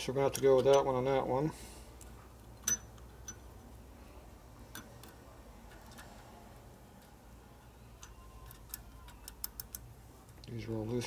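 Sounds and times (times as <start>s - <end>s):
faint low hum: 0.0s - 11.0s
metallic clicks and ticks: 8.0s - 10.6s.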